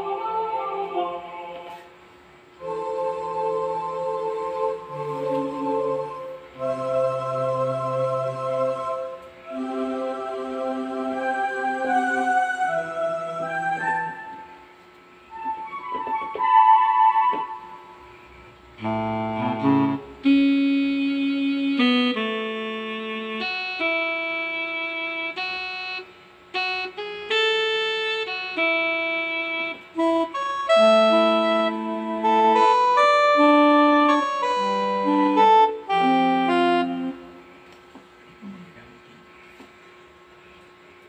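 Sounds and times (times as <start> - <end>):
keyboard playing a melody: 2.6 - 14.6, 18.8 - 37.7.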